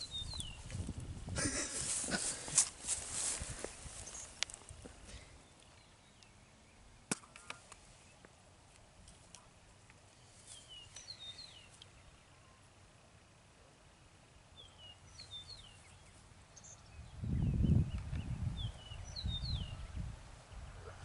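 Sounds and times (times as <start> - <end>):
bird chirping: 0.0 - 0.7, 10.2 - 12.7, 14.6 - 20.0.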